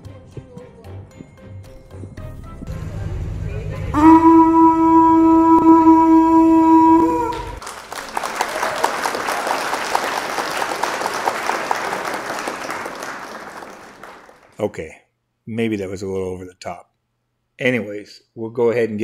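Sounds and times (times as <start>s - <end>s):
loud horn blast: 3.9s - 7.6s
crowd applauding: 6.8s - 14.6s.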